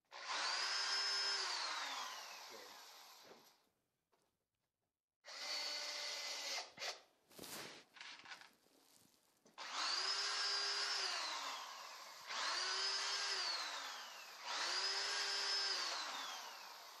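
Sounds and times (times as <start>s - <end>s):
cordless drill whining: 0.1s - 3.6s, 5.2s - 7.0s, 9.6s - 17.0s.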